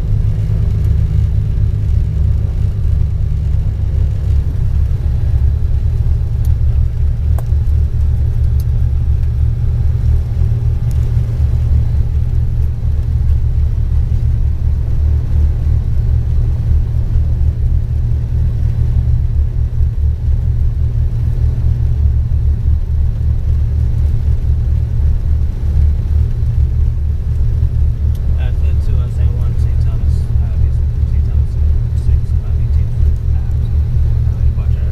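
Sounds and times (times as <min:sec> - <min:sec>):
aircraft piston engines droning: 0:23.8 - 0:34.9.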